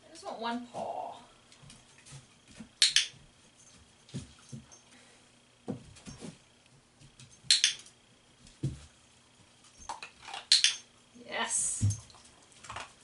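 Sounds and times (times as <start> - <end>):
dog-training clicker clicking: 2.8 - 3.1, 7.5 - 7.9, 10.5 - 10.8.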